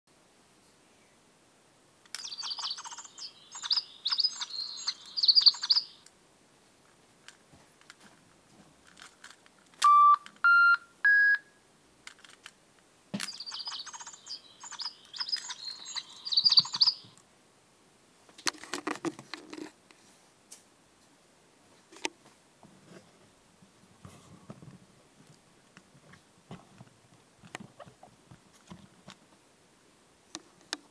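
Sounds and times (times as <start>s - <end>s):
electronic toy birdsong: 2.2s - 6.0s, 13.2s - 17.2s
handling rustle: 6.8s - 9.8s, 12.0s - 12.6s, 18.3s - 20.7s
short electronic beeps: 9.8s - 11.5s.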